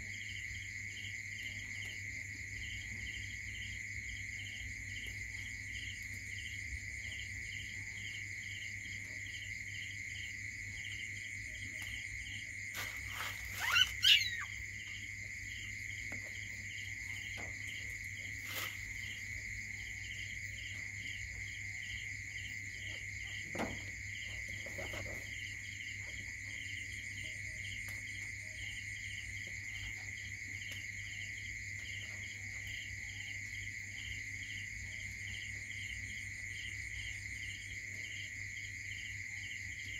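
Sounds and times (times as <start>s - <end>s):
crickets trilling: 0.0s - 39.9s
puppy squeaking: 13.6s - 14.5s.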